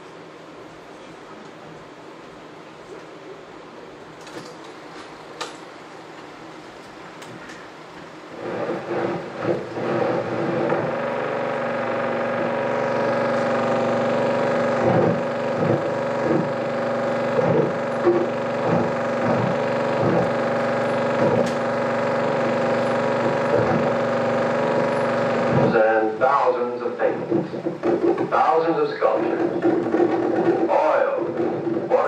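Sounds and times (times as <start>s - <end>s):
film projector mechanical drone: 7.8s - 32.0s
low thumps: 8.5s - 25.8s.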